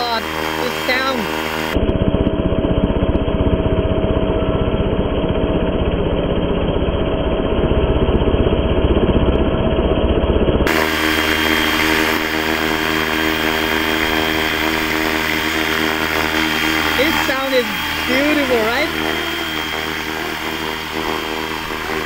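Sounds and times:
toy helicopter motor and rotor: 0.0 - 4.6, 10.7 - 22.0.

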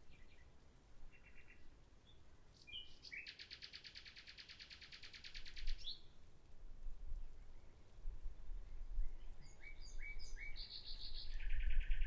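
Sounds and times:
nightingale singing: 0.0 - 6.2, 8.6 - 12.0.

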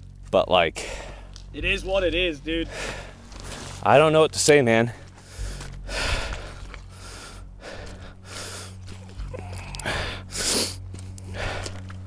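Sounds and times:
low steady hum: 0.0 - 12.0
man breathing hard: 0.8 - 1.4, 2.6 - 3.8, 4.9 - 12.0.

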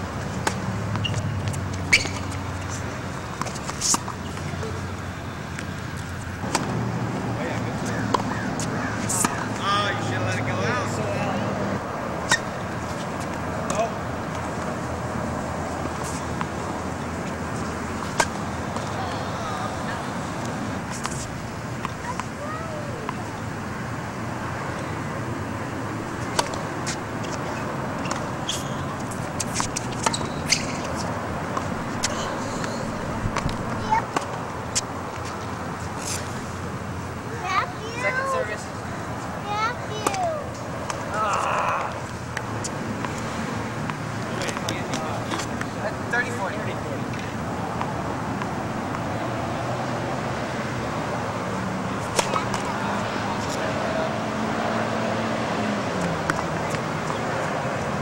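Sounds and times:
distant traffic hum: 0.0 - 58.0
tennis balls struck and bouncing: 0.2 - 11.0, 12.2 - 23.5, 26.0 - 35.3, 39.9 - 49.2, 52.0 - 54.1, 55.8 - 58.0.

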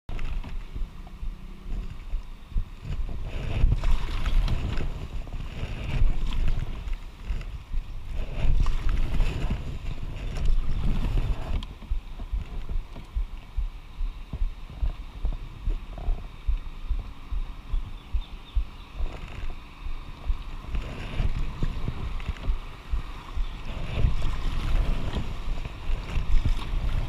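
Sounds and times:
wind buffeting microphone: 0.1 - 27.0.

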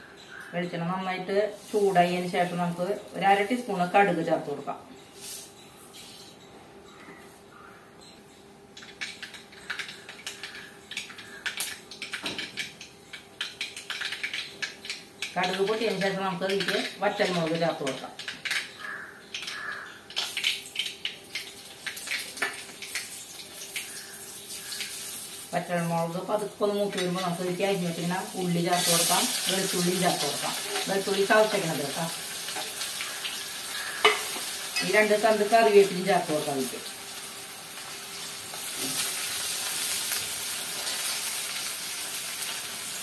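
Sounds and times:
oil sizzling: 1.5 - 4.0, 8.8 - 43.0
seeds popping in hot oil: 8.8 - 43.0.

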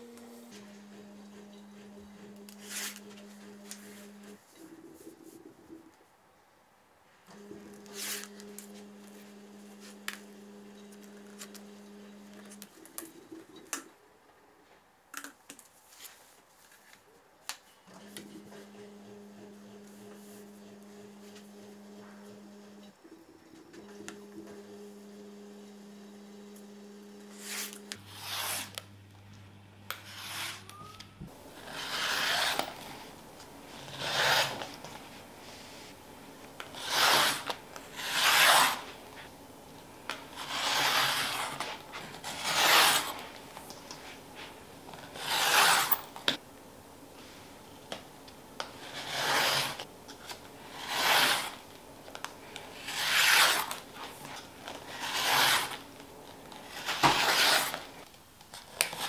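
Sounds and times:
rotary cutter cutting fabric: 26.6 - 28.8, 29.9 - 30.7, 31.6 - 33.0, 33.7 - 34.9, 36.6 - 38.9, 40.1 - 43.3, 45.1 - 46.1, 48.8 - 49.9, 50.7 - 51.6, 52.7 - 53.8, 54.9 - 55.8, 56.7 - 57.9.

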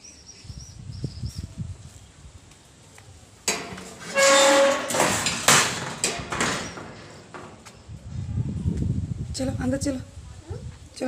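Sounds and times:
metal gate squealing: 3.5 - 7.3
metal gate scraping: 3.5 - 7.7
metal rattling and clanking: 3.5 - 7.7
sharp metal knocks: 3.5 - 7.7.

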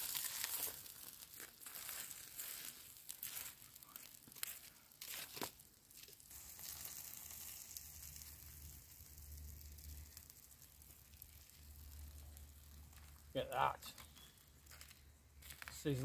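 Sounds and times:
sticks scraping through coals: 0.0 - 8.4
fire crackling and sizzling: 0.0 - 16.0.

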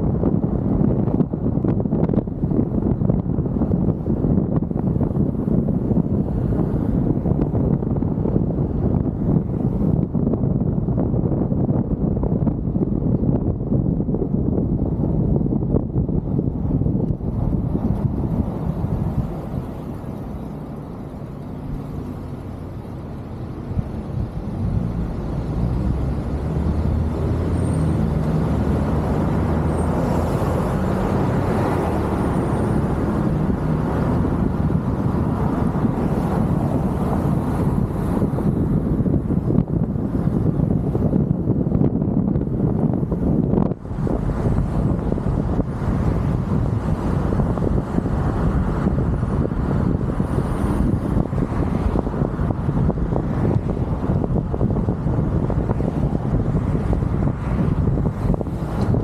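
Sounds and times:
car engine and tyre rumble: 0.0 - 59.0
wind buffeting microphone: 0.0 - 59.0.

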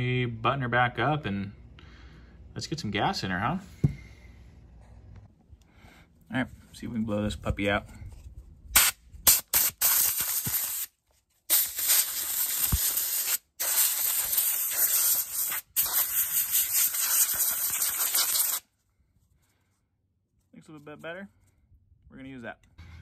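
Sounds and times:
compressed air blow gun hissing: 8.8 - 10.9, 11.5 - 18.6.

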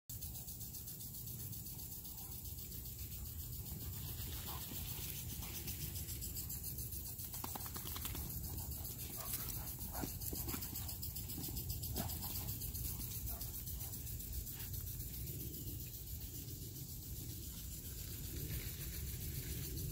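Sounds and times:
insect chorus buzzing: 0.1 - 19.9
dog paws clicking on concrete: 7.2 - 12.6.

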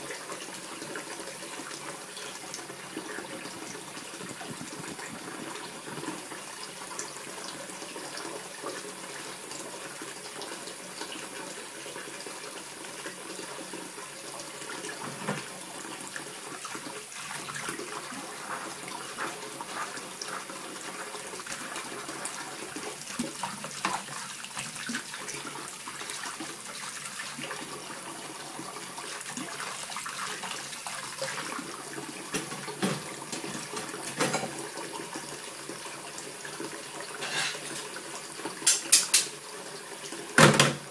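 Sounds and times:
dishes clinking: 33.8 - 34.6, 37.2 - 37.9.

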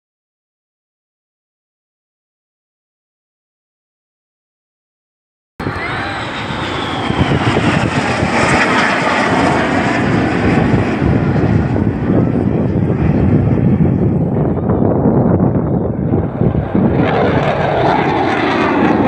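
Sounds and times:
falling jet whine: 5.6 - 19.0
jet engine rushing overhead: 5.6 - 19.0.

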